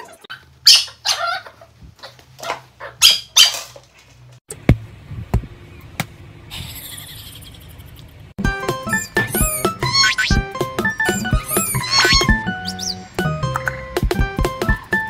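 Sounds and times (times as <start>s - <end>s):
small pet calling: 8.9s - 10.4s, 11.0s - 13.0s.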